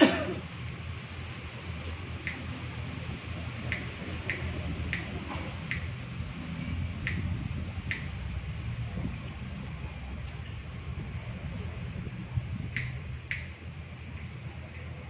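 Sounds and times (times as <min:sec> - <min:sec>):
steady low hum: 0:00.0 - 0:15.0
sharp clicks: 0:03.7 - 0:05.1, 0:05.7 - 0:06.0, 0:07.0 - 0:07.3, 0:07.9 - 0:08.1, 0:12.7 - 0:13.6.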